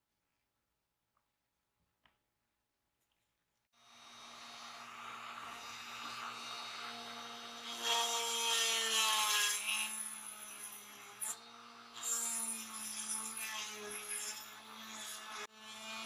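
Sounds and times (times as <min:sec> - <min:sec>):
rotary tool whining: 0:03.8 - 0:16.0
rotary tool grinding metal: 0:03.9 - 0:16.0.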